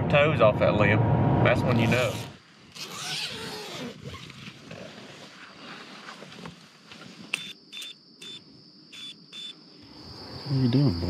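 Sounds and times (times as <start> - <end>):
insects trilling: 2.4 - 11.0.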